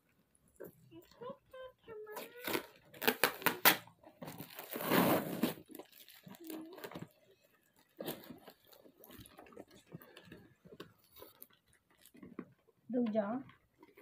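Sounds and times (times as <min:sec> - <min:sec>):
cardboard crinkling: 0:00.5 - 0:14.0
packing tape tearing: 0:02.1 - 0:07.2.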